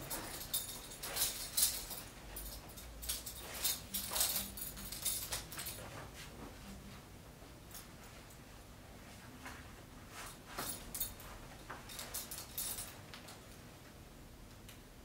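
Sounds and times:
metal belt buckle clinking: 0.0 - 5.8, 11.8 - 13.0
belt strap rustling through fabric: 0.0 - 5.9.

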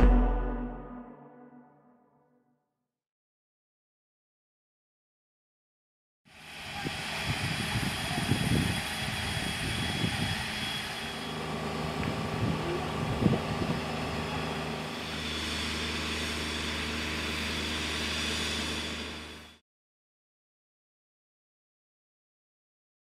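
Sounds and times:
steam hissing: 6.3 - 11.9, 13.4 - 19.5
steam locomotive rumble: 6.4 - 19.5.

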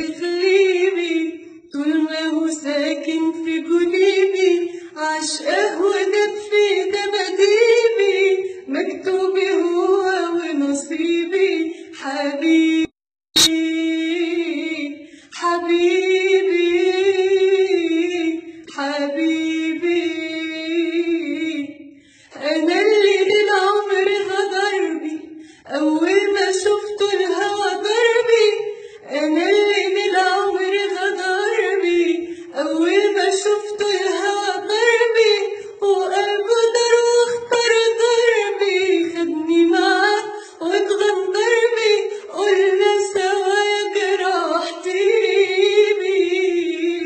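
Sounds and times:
woman singing unaccompanied: 0.0 - 47.0.

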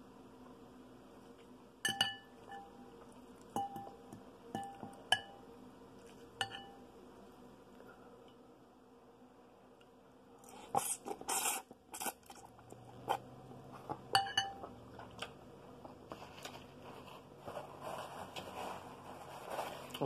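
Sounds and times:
fork clinking against glass bowl: 1.8 - 2.8, 4.6 - 5.4, 6.4 - 6.8, 14.1 - 14.7
soft chewing: 3.0 - 4.9, 5.9 - 6.4, 9.8 - 17.6
slurping noodles: 10.4 - 14.0.

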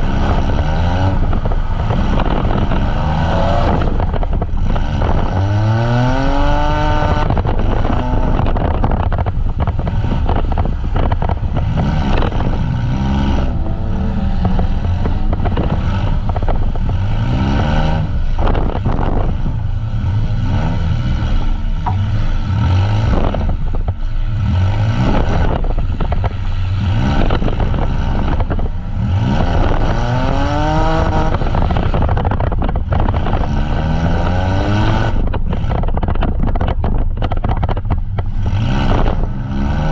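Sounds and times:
van engines revving: 0.0 - 39.9
vehicles crashing: 8.6 - 24.0
metal scraping: 11.2 - 22.7.

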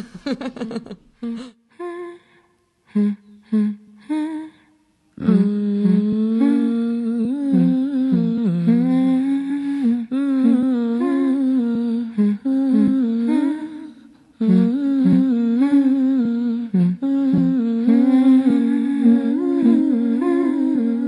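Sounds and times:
wordless humming voices music: 5.2 - 13.8, 14.4 - 21.0.

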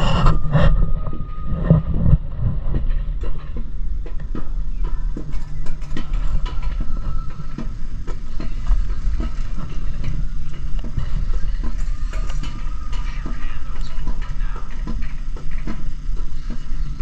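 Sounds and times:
coaster wheels rumbling: 0.0 - 17.0
wheels clacking on track: 0.0 - 17.0.

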